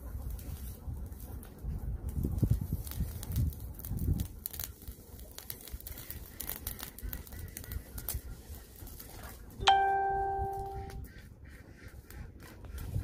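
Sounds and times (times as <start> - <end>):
wood fire crackling: 0.0 - 10.6
single ringing note: 9.6 - 11.0.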